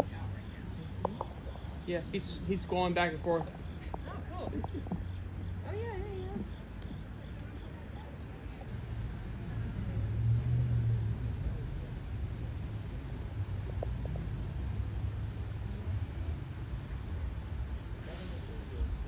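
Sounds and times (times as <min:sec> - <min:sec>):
high-pitched insect chorus: 0:00.0 - 0:19.0.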